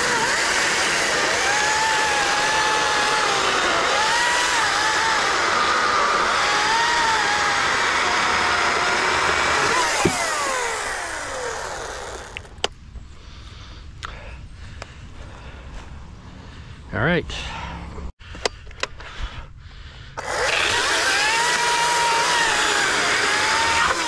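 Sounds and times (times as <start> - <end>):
battery chainsaw cutting wood: 0.0 - 12.7, 20.2 - 24.0.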